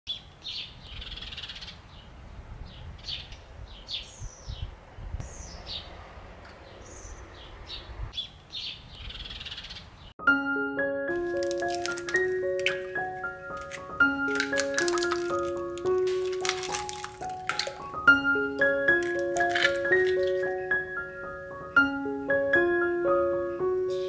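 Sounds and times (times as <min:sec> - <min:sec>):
birds chirping and singing: 0:00.1 - 0:05.9, 0:06.6 - 0:10.1, 0:16.4 - 0:22.5
music: 0:10.2 - 0:24.0.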